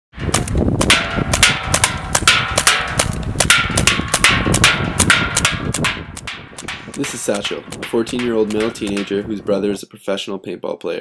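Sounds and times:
paintball marker pops: 0.3s - 9.1s.

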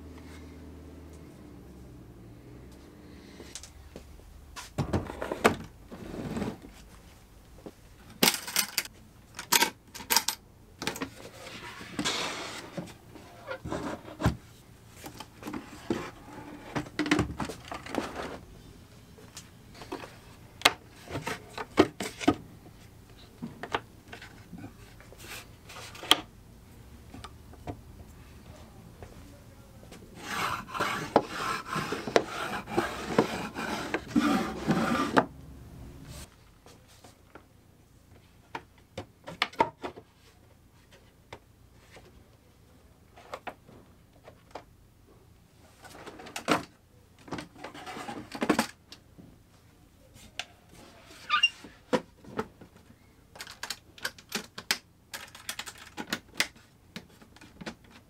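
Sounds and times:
wooden drawers sliding: 11.1s - 14.4s, 30.2s - 35.3s.

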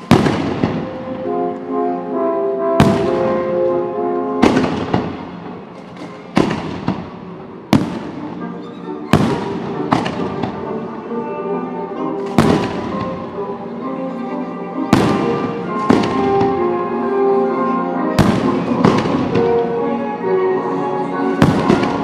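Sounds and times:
fireworks exploding: 0.0s - 1.8s, 2.8s - 3.8s, 4.4s - 8.5s, 9.1s - 10.9s, 12.2s - 13.5s, 14.9s - 16.9s, 18.2s - 19.9s, 21.4s - 22.0s
music playing: 0.0s - 22.0s.

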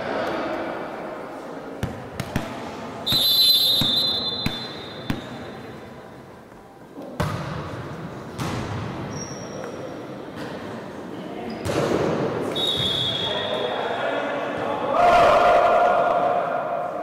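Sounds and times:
players and spectators noise: 0.0s - 17.0s
referee's whistle blast: 3.0s - 5.1s, 12.5s - 13.6s.

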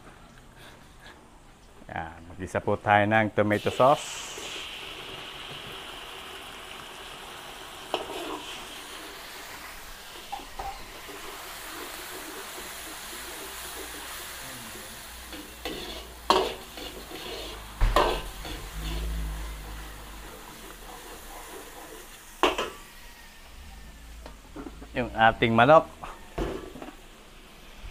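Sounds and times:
food sizzling in a pan: 3.5s - 27.9s
utensil knocking against pan: 17.8s - 18.2s.

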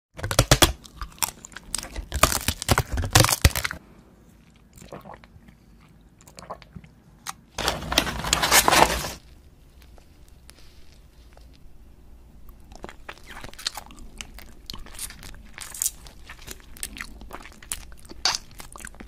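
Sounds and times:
crisp biting and crunching: 0.2s - 3.8s, 12.6s - 19.0s
wet mouth sounds: 4.4s - 7.4s, 12.4s - 19.0s
paper crinkling and rustling: 7.6s - 9.3s.

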